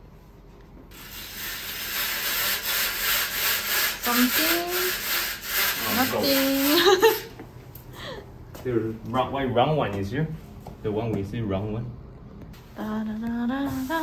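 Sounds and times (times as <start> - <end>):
blind cord rasping: 0.9 - 7.3.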